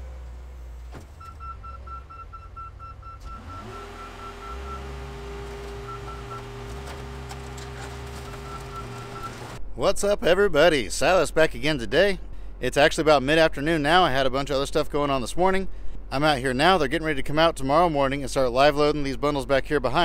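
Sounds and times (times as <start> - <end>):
car crusher engine rumble: 0.0 - 9.6
hydraulic pump whine: 3.2 - 9.6.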